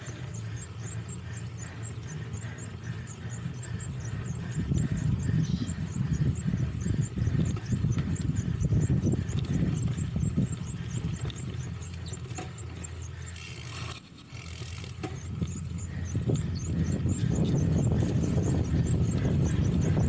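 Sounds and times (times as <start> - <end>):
bike tyres rumbling: 0.0 - 20.0
rapid regular ticking: 0.0 - 20.0
wind on microphone: 4.6 - 11.2, 15.4 - 20.0.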